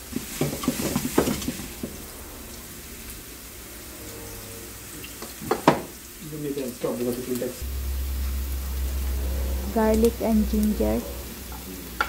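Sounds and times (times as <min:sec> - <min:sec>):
stirring knocks: 0:00.0 - 0:02.0, 0:05.2 - 0:05.9
onion sizzling in pan: 0:00.0 - 0:12.0.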